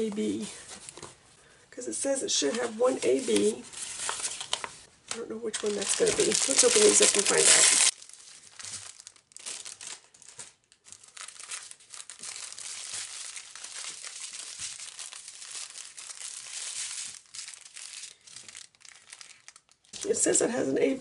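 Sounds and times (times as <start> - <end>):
plastic packaging crinkling: 2.6 - 20.2.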